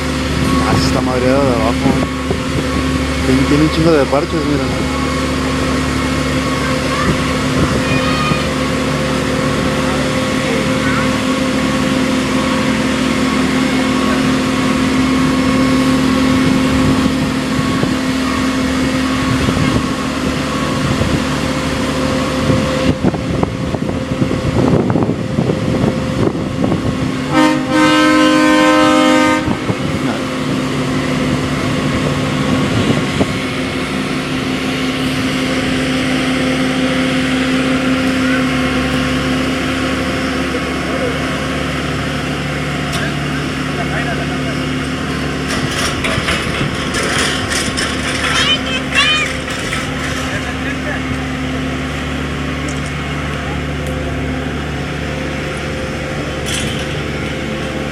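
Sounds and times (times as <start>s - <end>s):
engine running steadily: 0.0s - 57.9s
horn sounding: 27.3s - 30.3s.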